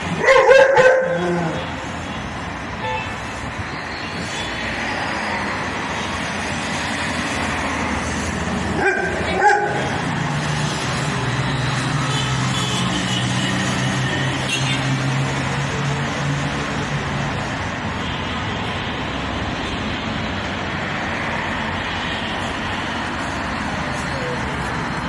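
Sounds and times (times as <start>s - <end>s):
street traffic noise: 0.0s - 25.0s
dog barking: 0.2s - 1.5s, 8.7s - 10.0s.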